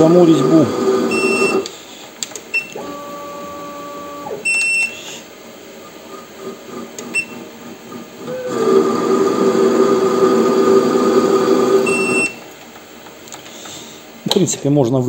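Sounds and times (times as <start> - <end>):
lathe leadscrew drive whine: 0.0 - 1.8, 2.8 - 12.4
short high controller beeps: 1.1 - 1.6.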